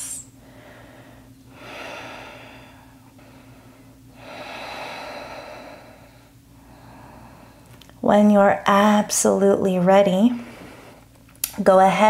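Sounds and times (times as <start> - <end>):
faint steady hum: 0.0 - 12.0
woman breathing deeply: 0.3 - 7.9, 10.3 - 11.2.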